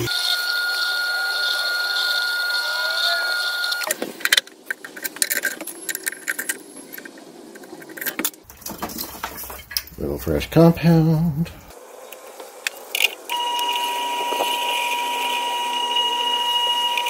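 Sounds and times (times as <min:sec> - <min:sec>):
grinder whining: 0:00.0 - 0:03.9, 0:12.9 - 0:17.0
metal clicks and clatter: 0:04.2 - 0:10.0.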